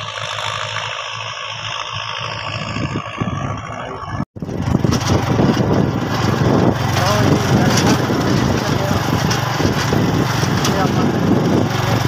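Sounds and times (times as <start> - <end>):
distant tractor engine running: 0.0 - 12.0
motorcycle engine running: 0.0 - 12.0.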